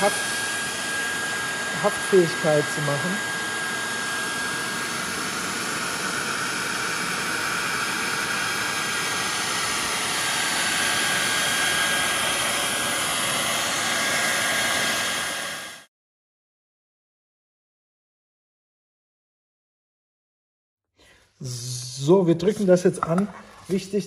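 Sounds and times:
hair dryer running: 0:00.0 - 0:15.9.

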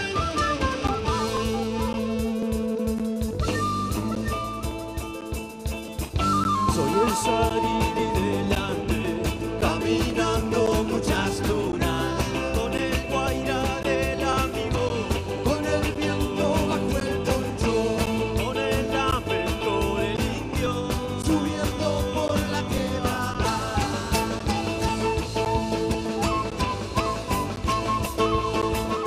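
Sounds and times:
drum kit beat: 0:00.0 - 0:29.0
live band playing fast song: 0:00.0 - 0:29.0
strummed charango: 0:23.2 - 0:29.0.

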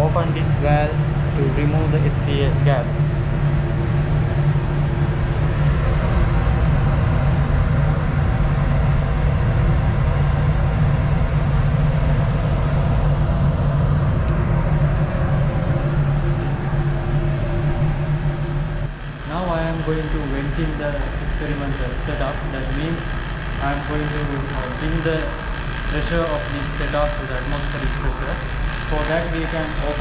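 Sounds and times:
fume hood exhaust airflow: 0:00.0 - 0:30.0
low hum: 0:00.0 - 0:30.0.

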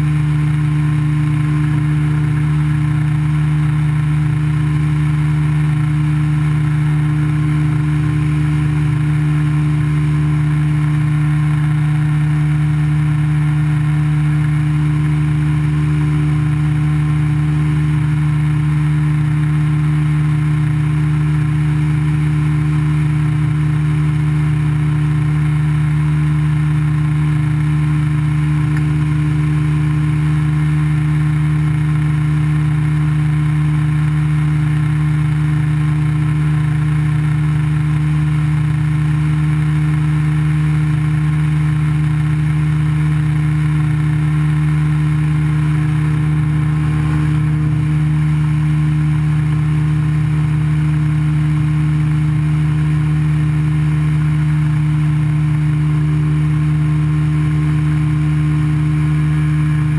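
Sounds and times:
aircraft engine droning: 0:00.0 - 0:59.9.

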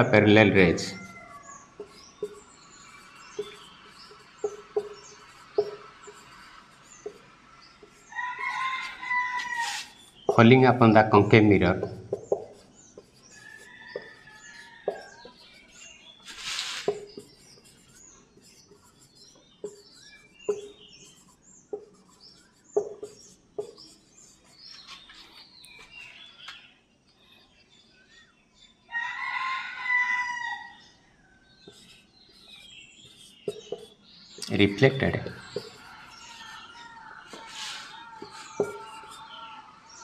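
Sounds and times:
small birds chirping: 0:00.0 - 0:40.0
rooster crowing: 0:00.6 - 0:01.9, 0:08.1 - 0:09.9, 0:13.4 - 0:15.3, 0:28.9 - 0:30.8, 0:35.6 - 0:40.0
marker tapping on whiteboard: 0:01.8 - 0:02.4, 0:03.2 - 0:08.1, 0:08.8 - 0:10.6, 0:11.6 - 0:13.3, 0:13.9 - 0:15.7, 0:16.8 - 0:17.6, 0:19.6 - 0:21.1, 0:21.7 - 0:24.0, 0:33.0 - 0:39.6.

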